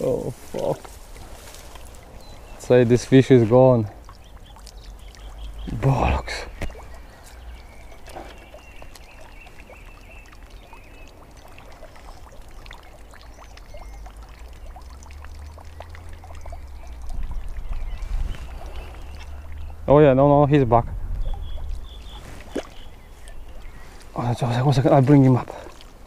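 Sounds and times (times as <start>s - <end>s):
water trickling: 0.0s - 26.0s
wind rumble on microphone: 16.4s - 24.2s.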